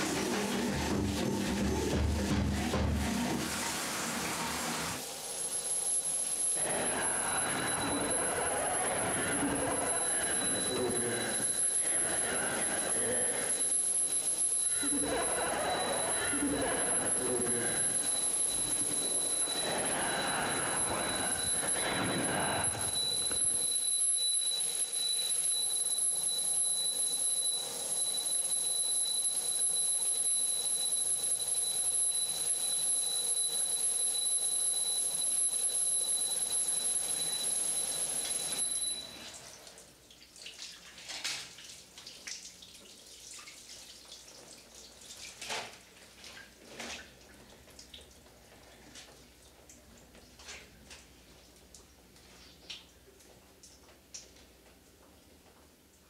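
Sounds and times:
shower water running: 0.0 - 23.7, 37.1 - 52.9
high-pitched ringing tone: 5.0 - 39.4
water drips and splashes: 39.4 - 48.4.

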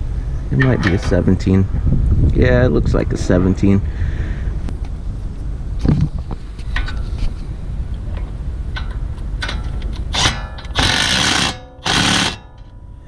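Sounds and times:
wind rumble on microphone: 0.0 - 10.2.

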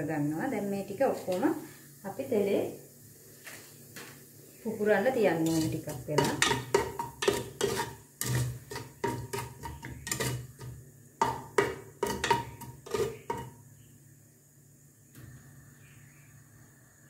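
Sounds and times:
spatula scraping metal pot: 5.4 - 13.6.

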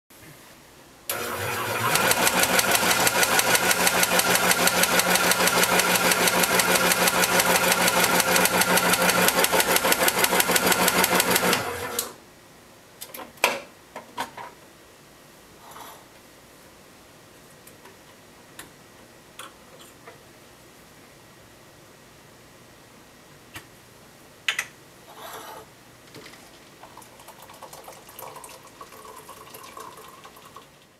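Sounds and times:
electric shaker motor hum: 1.1 - 12.2.

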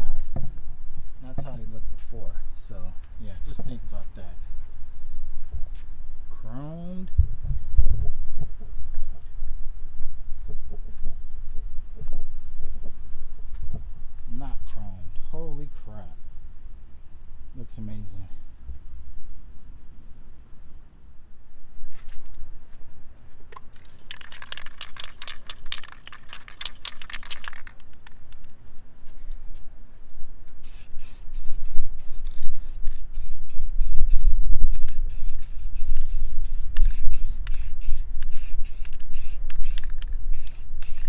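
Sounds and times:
spray can rattling: 23.5 - 28.4, 30.6 - 41.0
short spray paint hisses: 30.6 - 41.0.

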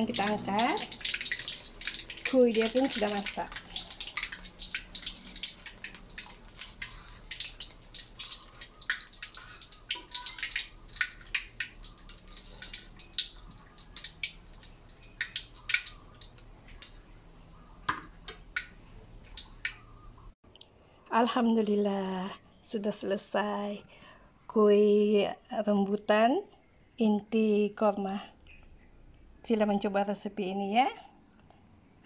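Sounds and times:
oil dripping from strainer: 0.0 - 20.3
oil crackling and popping in a wok: 0.0 - 20.4.

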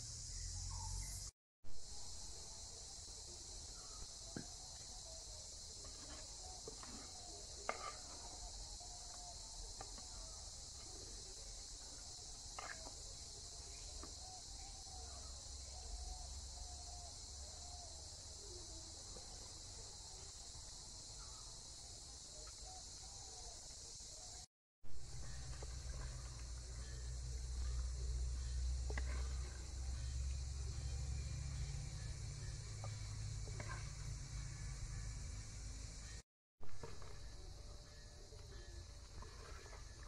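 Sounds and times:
faint bird chirps: 0.0 - 1.3
high-pitched insect chorus: 0.0 - 36.2, 36.8 - 40.0.

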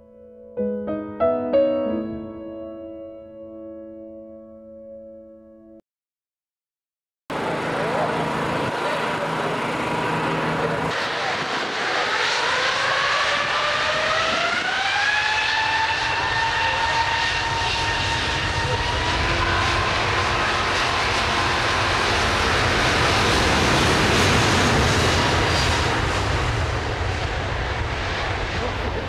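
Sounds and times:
jet engines spooling up: 7.3 - 29.0.

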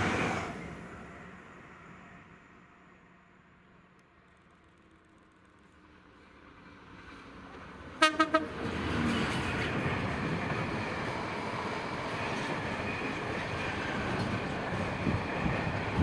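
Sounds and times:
locomotive horn pips: 8.0 - 8.5.

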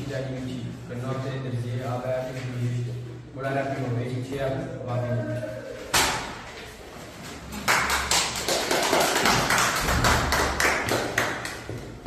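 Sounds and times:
people clapping: 7.5 - 12.0.

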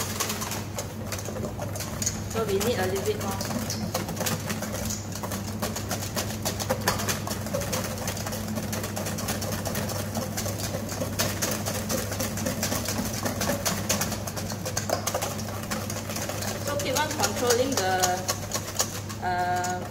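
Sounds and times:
whisk clicking in metal bowl: 0.0 - 19.9.

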